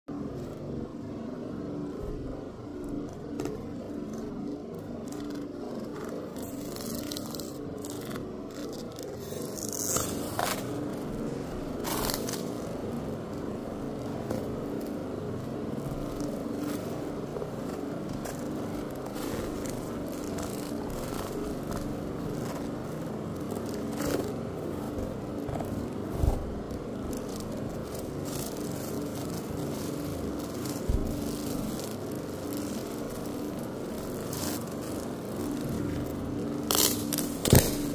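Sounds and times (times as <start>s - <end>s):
low mechanical hum: 0.1s - 37.9s
plastic film crackling: 0.1s - 37.9s
paper and cardboard tearing: 5.0s - 12.8s, 15.8s - 37.9s
cardboard box clicks and rustles: 23.5s - 37.9s.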